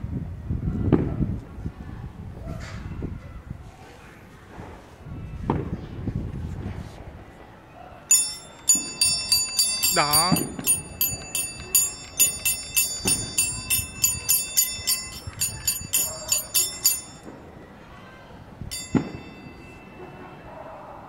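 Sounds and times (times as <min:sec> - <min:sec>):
bell ringing quickly: 0:08.1 - 0:17.3, 0:18.7 - 0:20.1.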